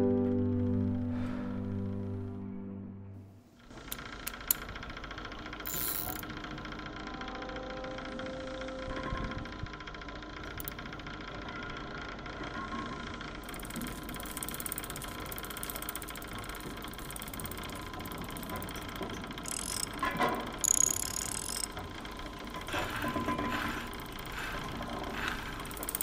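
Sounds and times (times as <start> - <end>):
clockwork mechanism whirring: 3.6 - 26.0
ratcheting gear ticks: 3.9 - 6.6, 10.4 - 11.1, 13.4 - 26.0.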